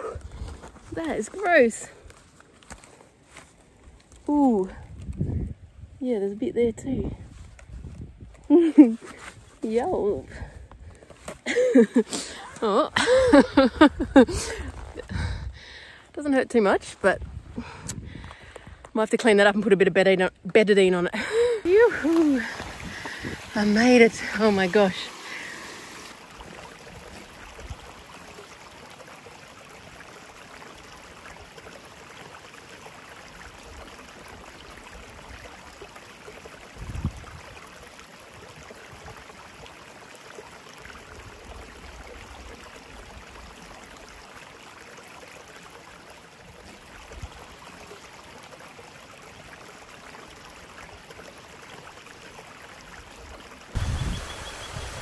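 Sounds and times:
creek and waterfall rushing: 21.3 - 55.0.

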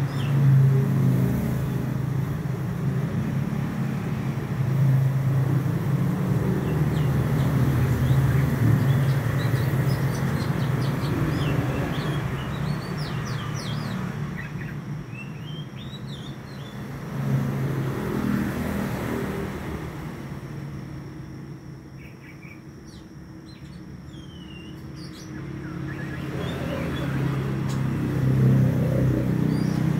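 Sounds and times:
bird singing: 0.0 - 0.7, 6.1 - 17.0, 21.2 - 29.9
vehicle engine rumble: 0.0 - 29.9.

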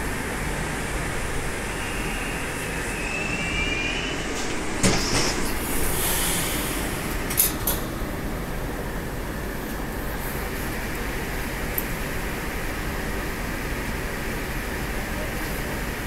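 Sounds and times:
train car hum and hiss: 0.0 - 16.0
sliding doors opening with clatter: 4.2 - 8.1.

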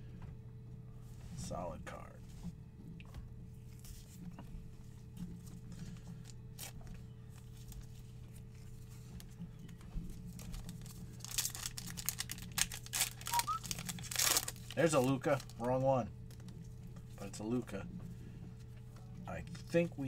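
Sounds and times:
steady low hum: 0.0 - 20.0
wrapper tearing and crinkling: 6.6 - 6.8, 10.3 - 15.7.

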